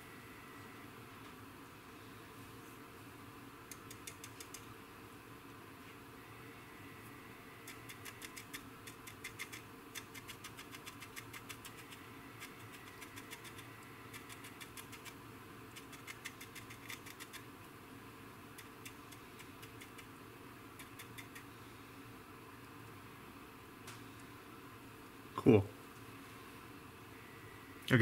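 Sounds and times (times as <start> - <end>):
low steady hum: 0.0 - 28.0
paintbrush dabbing ticks: 7.6 - 17.5, 18.6 - 20.1, 20.7 - 21.5.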